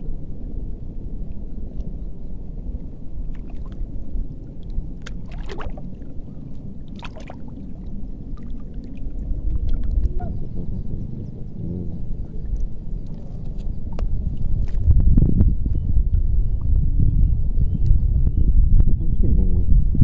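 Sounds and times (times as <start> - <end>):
wind rumbling on microphone: 0.0 - 20.0
short splashes: 3.2 - 3.8, 4.6 - 6.2, 6.8 - 10.2
water lapping: 3.2 - 14.9.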